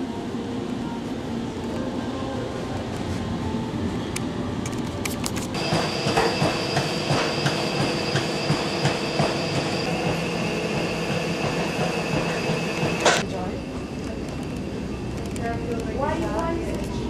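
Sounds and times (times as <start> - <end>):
rail vehicle rumble: 0.0 - 17.0.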